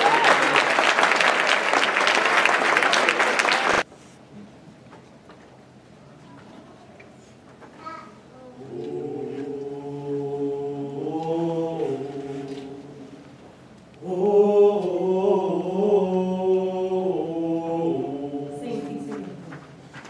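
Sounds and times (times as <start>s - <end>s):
men singing a cappella harmony: 8.6s - 13.4s, 14.0s - 19.4s.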